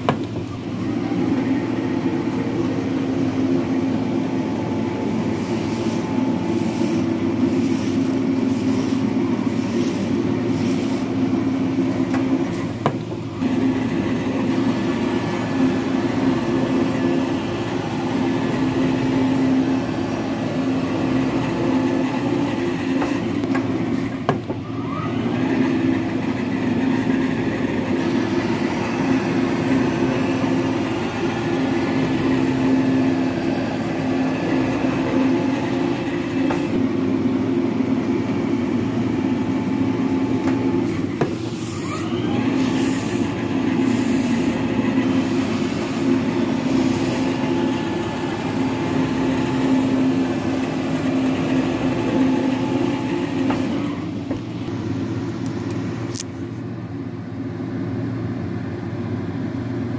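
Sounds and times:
metal planer humming: 0.0s - 56.2s
rising machine whine: 24.6s - 41.1s.

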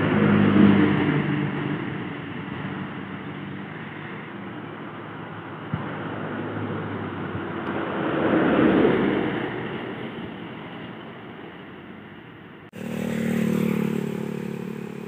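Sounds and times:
vehicle approaching: 12.7s - 15.0s
diesel truck passing: 12.8s - 15.0s.

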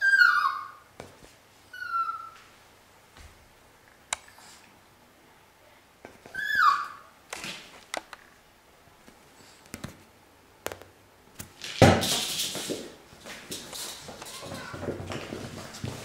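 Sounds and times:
puppy yelp: 0.0s - 0.9s, 1.7s - 2.4s, 6.3s - 7.1s
scuffling noise: 11.5s - 16.0s.

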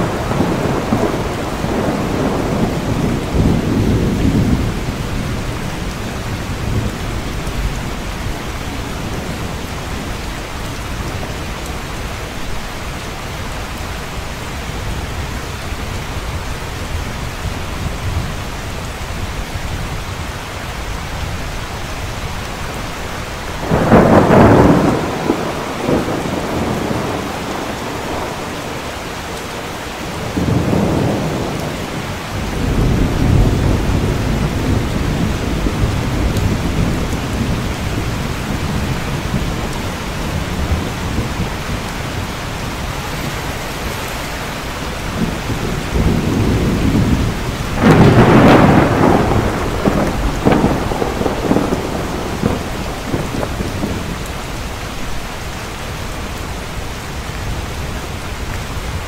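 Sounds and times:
thunder rolling: 0.0s - 10.2s, 23.6s - 28.8s, 30.1s - 54.4s
heavy rain: 0.0s - 59.0s.

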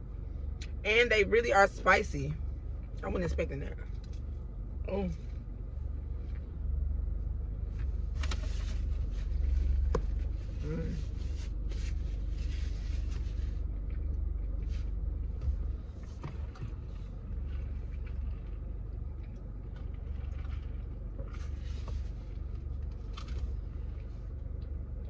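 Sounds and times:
car idling: 0.0s - 25.0s
faint chewing: 16.0s - 25.0s.

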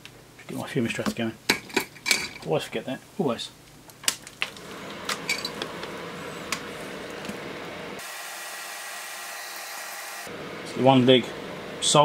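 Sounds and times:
extractor fan airflow hiss: 4.5s - 12.0s.

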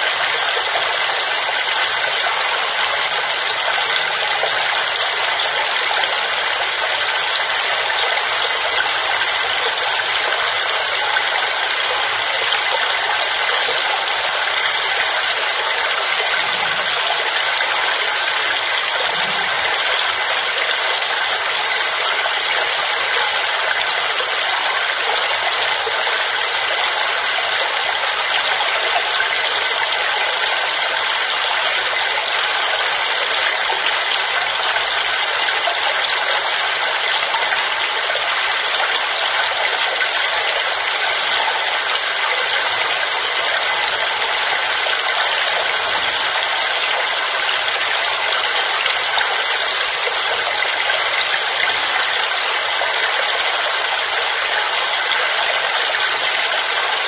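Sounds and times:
waterfall rushing: 0.0s - 30.2s.

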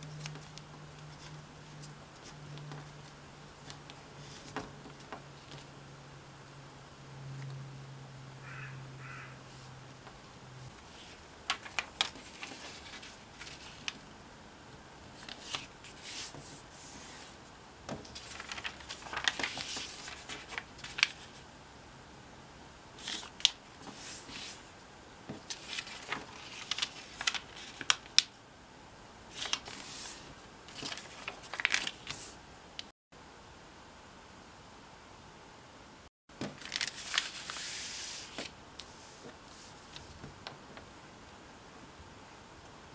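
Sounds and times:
paper rustling: 0.0s - 5.7s, 10.7s - 14.0s, 15.1s - 21.4s, 23.0s - 24.7s, 25.3s - 28.3s, 29.3s - 32.4s, 36.4s - 40.8s
paper creasing clicks: 11.1s - 14.0s.

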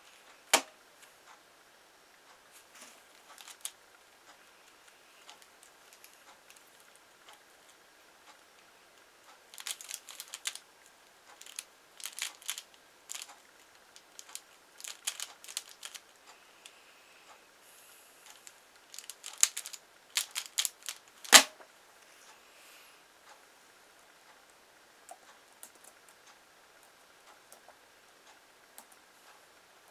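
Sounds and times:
plastic puzzle clicking turns: 3.1s - 3.8s, 9.5s - 10.6s, 11.3s - 13.4s, 14.0s - 16.1s, 18.2s - 21.5s.

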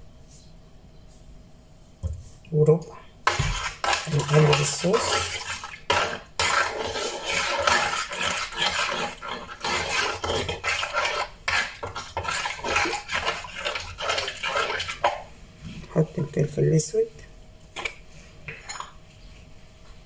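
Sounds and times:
spoon scraping metal bowl: 3.2s - 15.2s.

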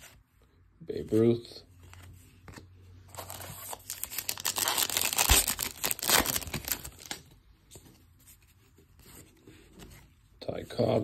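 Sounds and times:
wrapper tearing and crinkling: 3.2s - 7.2s.

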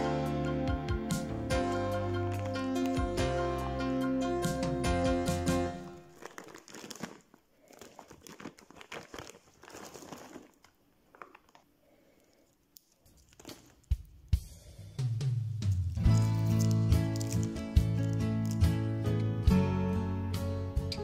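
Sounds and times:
plastic wrapper crinkling and tearing: 2.2s - 3.2s, 5.8s - 14.2s, 15.6s - 19.3s.

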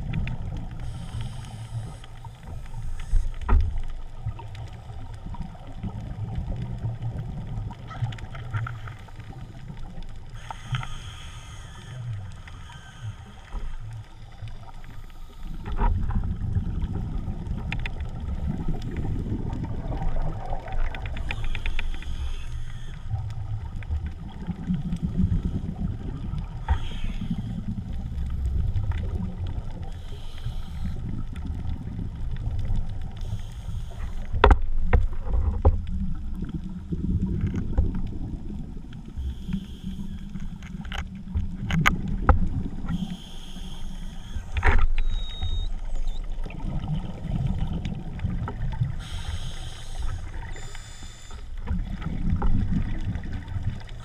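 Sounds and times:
underwater water rushing rumble: 14.1s - 21.4s, 34.3s - 39.1s, 45.8s - 50.6s, 51.5s - 54.0s.

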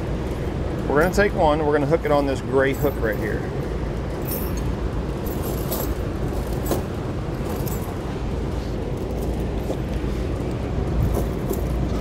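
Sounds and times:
steady low rumble: 0.0s - 12.0s
tire chain links clinking: 2.6s - 12.0s.

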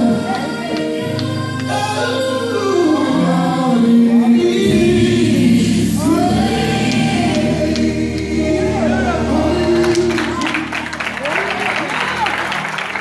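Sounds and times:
choir singing gospel: 0.0s - 13.0s.

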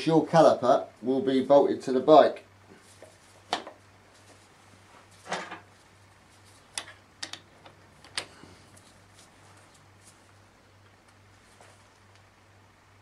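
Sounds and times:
metallic clicks and knocks: 6.7s - 8.3s.

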